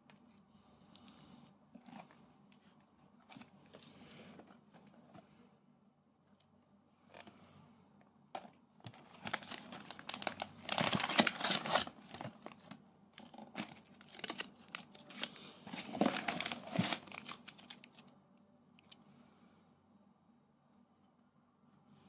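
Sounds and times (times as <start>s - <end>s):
foil packets crinkling: 8.9s - 18.1s.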